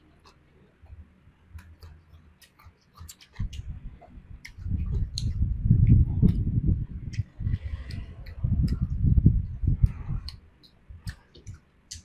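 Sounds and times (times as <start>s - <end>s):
close chewing mouth sounds: 1.6s - 12.0s
low rumbling: 3.4s - 11.2s.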